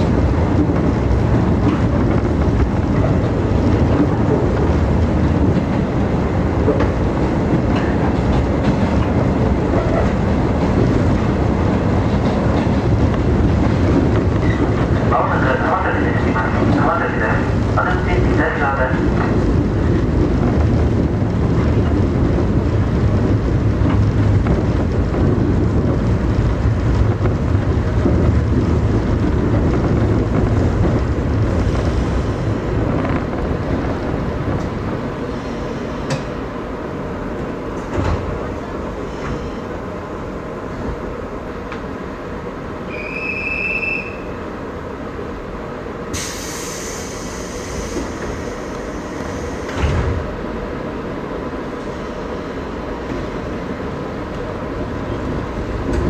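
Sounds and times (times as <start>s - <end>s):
electric train rumble: 0.0s - 56.0s
air hiss: 46.1s - 49.8s.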